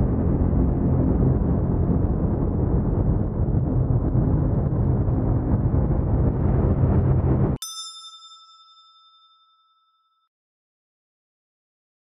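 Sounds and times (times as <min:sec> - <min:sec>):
deep rumbling drone: 0:00.0 - 0:07.6.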